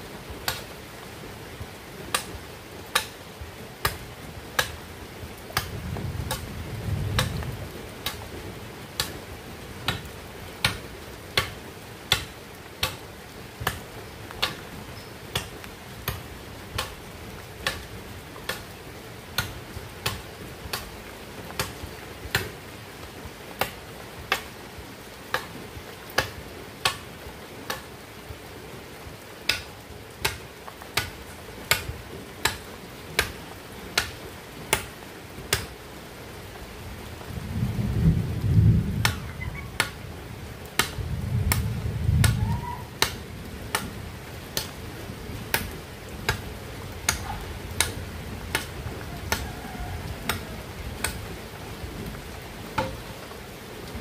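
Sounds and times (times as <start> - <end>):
machete chopping bamboo: 0.4 - 0.7, 2.9 - 3.2, 6.3 - 6.5, 10.6 - 10.8, 11.4 - 13.0, 14.4 - 14.6, 15.3 - 16.2, 16.8 - 17.0, 17.6 - 17.8, 18.5 - 18.7, 19.4 - 20.9, 21.6 - 22.5, 23.6 - 24.5, 26.2 - 27.0, 27.7 - 27.9, 29.5 - 30.4, 31.0 - 32.6, 33.2 - 33.4, 34.0 - 34.9, 35.5 - 35.8, 40.8 - 41.6, 43.0 - 43.9, 44.5 - 44.8, 45.5 - 49.5, 50.3 - 51.3, 52.8 - 53.1.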